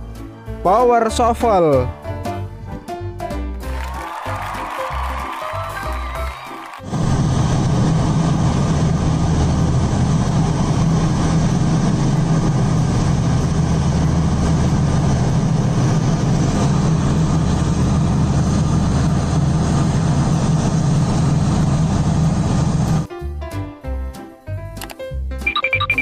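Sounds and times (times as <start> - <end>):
diesel engine droning: 6.9 - 23.1.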